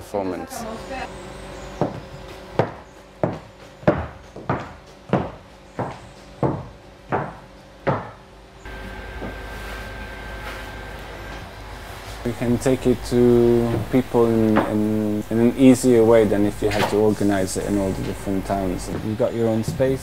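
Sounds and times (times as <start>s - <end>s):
faint steady hum: 8.6s - 20.0s
thin high tone: 12.2s - 19.4s.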